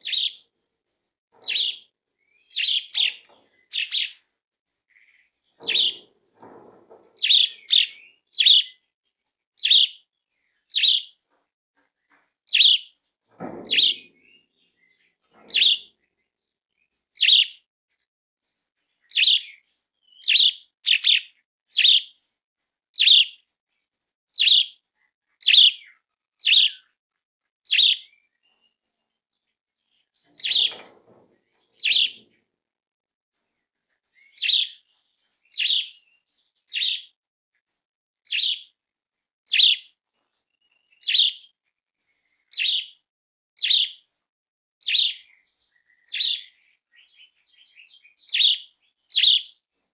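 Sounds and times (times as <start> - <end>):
starling calling: 1.4 - 1.8, 5.6 - 8.7, 31.6 - 32.3.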